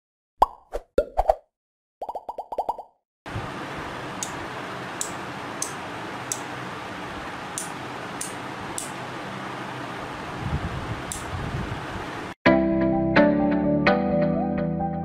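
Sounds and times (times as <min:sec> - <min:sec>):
relays clicking: 0:11.1 - 0:11.3.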